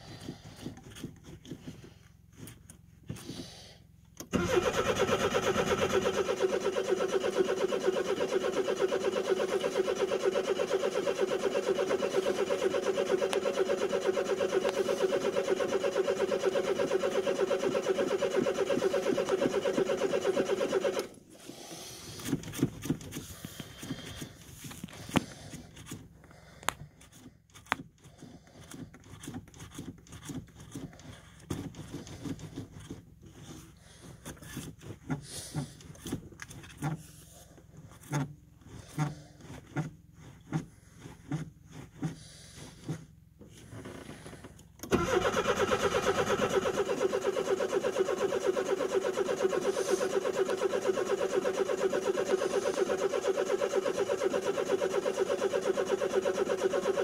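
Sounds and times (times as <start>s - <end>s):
car engine cranking: 4.2s - 21.4s, 43.6s - 57.0s.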